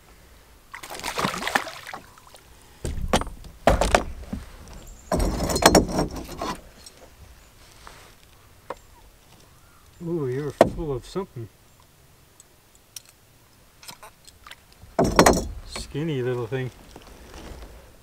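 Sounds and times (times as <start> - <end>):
fish splashing in water: 0.7 - 2.5
rustling: 0.9 - 11.2, 13.8 - 18.0.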